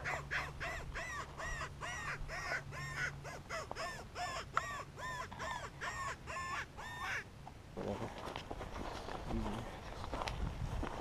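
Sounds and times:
short cawing calls: 0.0 - 7.3.

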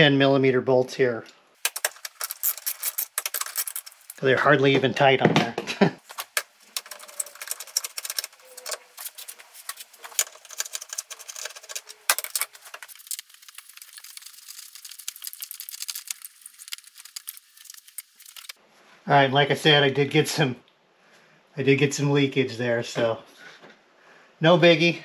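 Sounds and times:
bolts clicking and rattling: 6.0 - 12.9.

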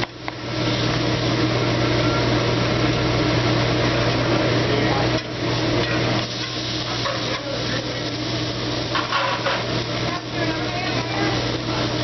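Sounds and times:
seafood sizzling on a griddle: 0.0 - 12.0
steady low hum: 0.0 - 12.0
faint restaurant chatter: 3.8 - 12.0.

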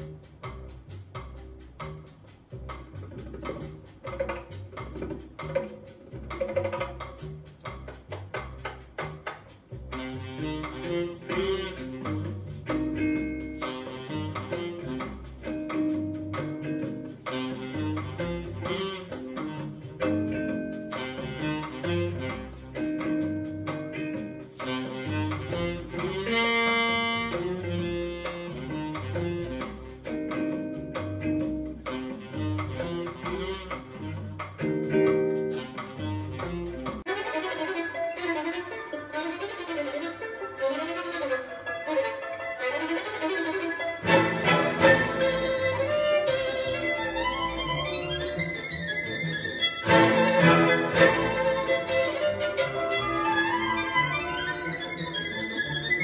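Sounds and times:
plucked guitar music: 11.1 - 17.4, 18.2 - 21.3, 22.5 - 24.7, 30.0 - 32.3, 34.0 - 40.6, 43.4 - 56.0
violin piece: 37.0 - 56.0.

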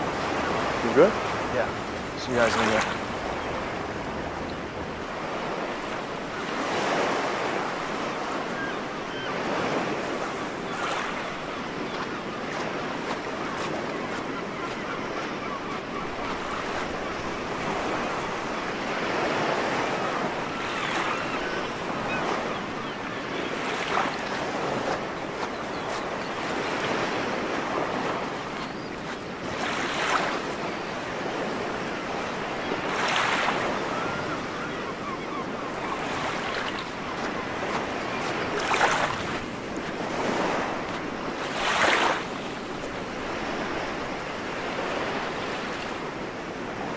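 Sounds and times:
ocean waves breaking on shore: 0.0 - 46.9.

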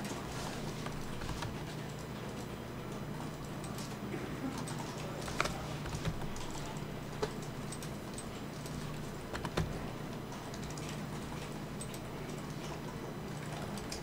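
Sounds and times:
low electrical hum: 0.0 - 14.0
mouse and keyboard clicks: 5.2 - 6.4.

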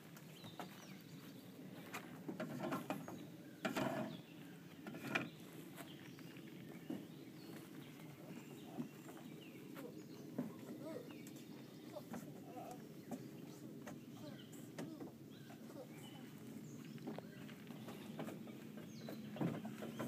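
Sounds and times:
birds chirping faintly: 0.0 - 20.0
toddler footsteps on plastic: 15.5 - 20.0.

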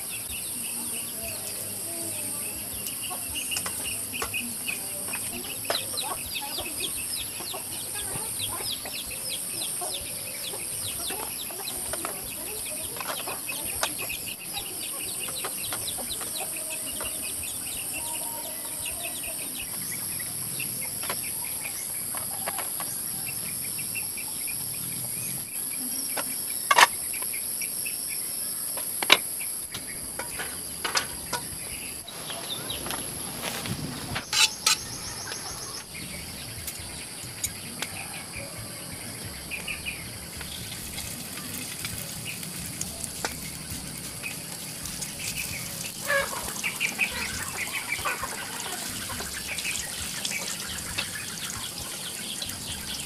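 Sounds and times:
bird chirps: 29.4 - 40.7.

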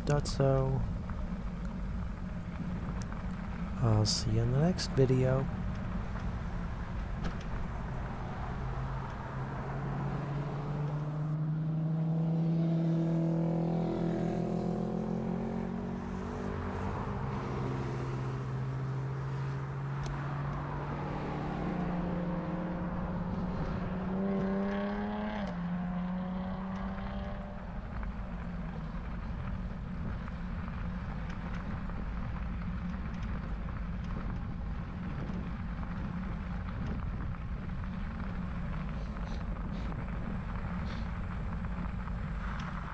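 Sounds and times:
steady rushing noise: 0.0 - 11.4, 27.2 - 42.9
vehicle engines passing: 0.0 - 42.9.

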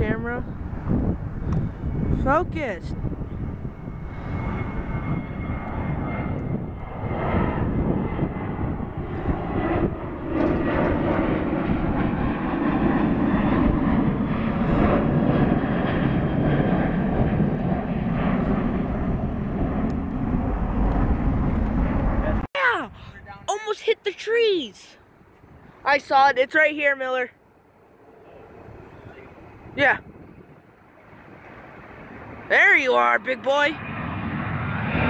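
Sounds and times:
jet engines climbing: 0.0 - 35.0.

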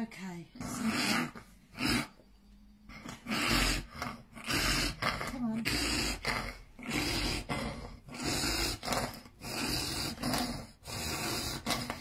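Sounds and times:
child snoring-like breaths: 3.0 - 12.0.

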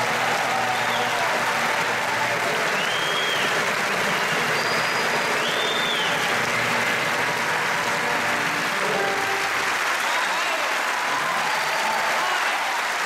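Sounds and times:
audience applauding: 0.0 - 13.0
high whistles: 0.6 - 1.4, 2.7 - 6.4.

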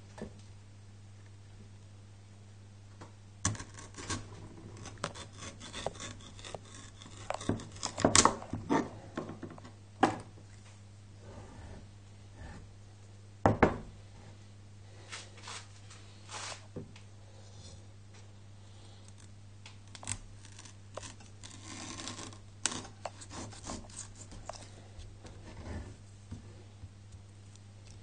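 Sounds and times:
knife scraping squash: 3.5 - 9.0, 20.0 - 24.8.

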